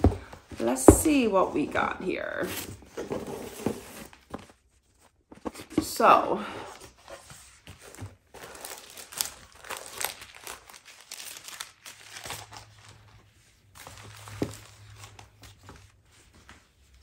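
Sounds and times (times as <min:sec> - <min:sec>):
tissue paper rustling: 0:06.8 - 0:17.0.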